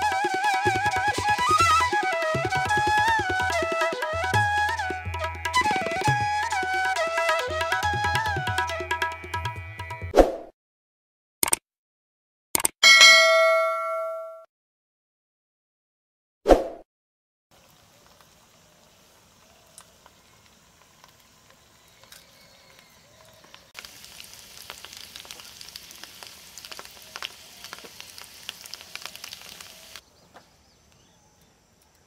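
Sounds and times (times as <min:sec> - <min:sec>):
fritters sizzling in hot oil: 0:17.5 - 0:30.0.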